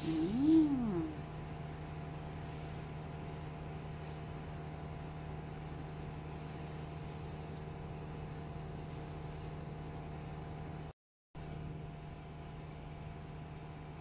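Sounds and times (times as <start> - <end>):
machine hum: 0.0 - 2.9.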